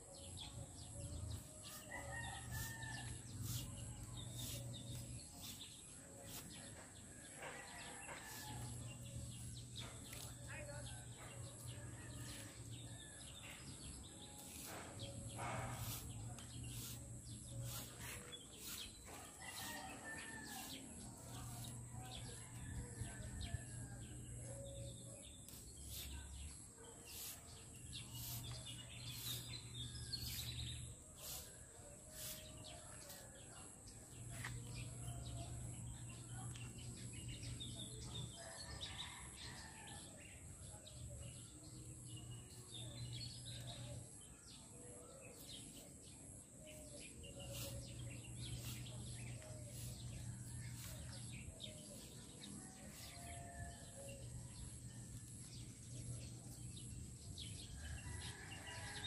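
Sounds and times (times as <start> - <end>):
birds chirping: 42.0 - 59.0.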